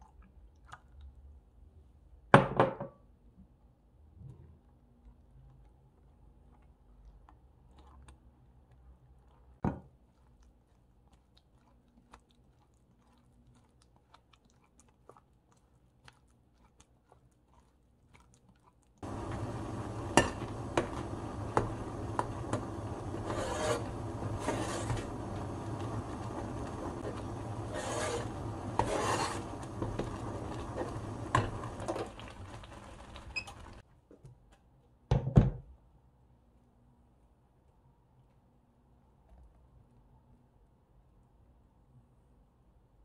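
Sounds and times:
spatula scraping through strainer: 0:19.0 - 0:33.8
metal spoon scraping a pot: 0:20.1 - 0:31.8.

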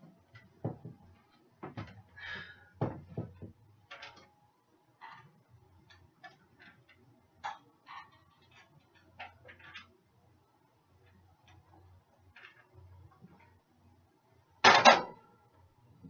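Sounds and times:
kitchenware knocks and clicks: 0:00.4 - 0:01.0, 0:02.8 - 0:04.2, 0:14.6 - 0:15.2.

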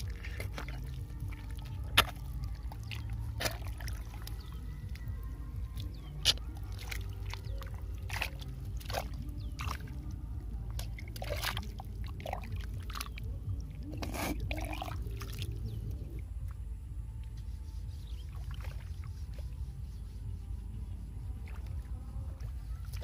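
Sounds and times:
hand splashing in muddy water: 0:00.0 - 0:16.1.

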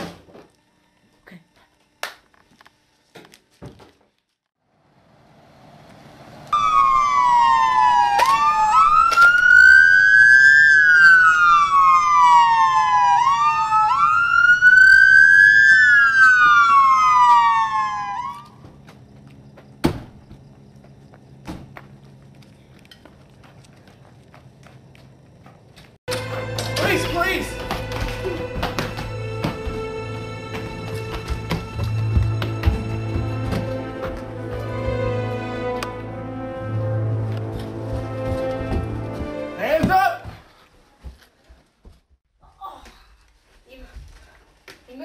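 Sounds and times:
siren wailing: 0:06.5 - 0:18.6.

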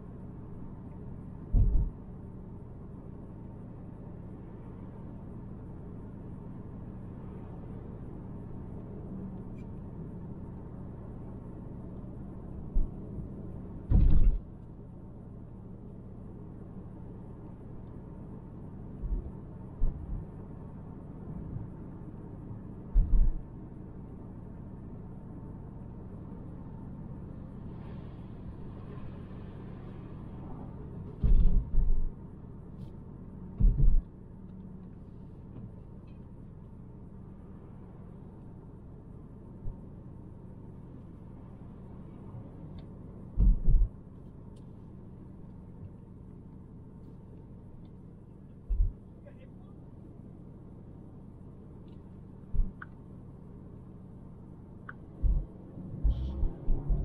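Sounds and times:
car cabin road noise: 0:00.0 - 0:57.0
low thumps: 0:01.5 - 0:01.9, 0:22.9 - 0:23.4, 0:33.6 - 0:34.1, 0:43.4 - 0:43.9, 0:48.7 - 0:49.0, 0:52.5 - 0:52.9, 0:55.2 - 0:57.0.

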